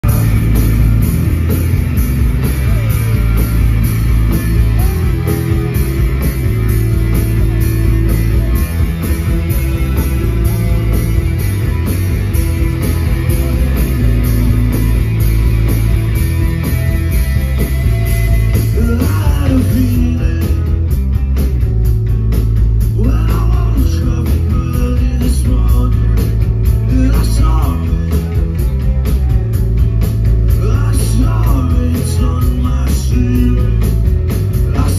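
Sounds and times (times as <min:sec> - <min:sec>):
live rock band playing: 0:00.0 - 0:34.9
person singing: 0:18.0 - 0:20.9, 0:23.0 - 0:28.6.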